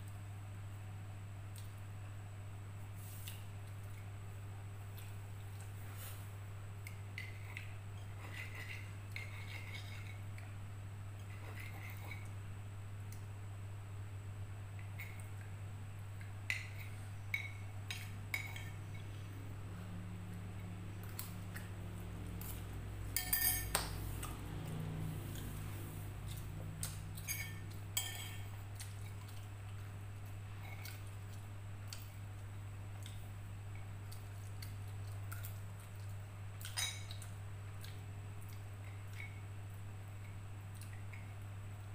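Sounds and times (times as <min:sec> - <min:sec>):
steady low hum: 0:00.0 - 0:41.9
spoon clinking on ceramic plate: 0:23.1 - 0:24.0, 0:27.2 - 0:28.5
cutlery scraping on ceramic plate: 0:23.2 - 0:24.0.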